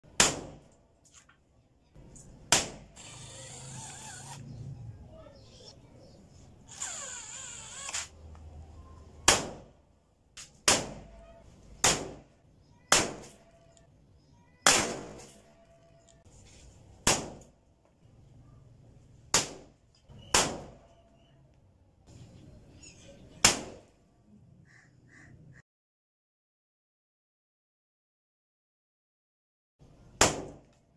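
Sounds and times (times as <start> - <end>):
toy gun firecracker bangs: 0.1 - 0.7, 2.5 - 3.0, 9.2 - 9.7, 10.6 - 11.1, 11.8 - 13.4, 14.6 - 15.5, 17.0 - 17.5, 20.3 - 20.8, 30.2 - 30.8.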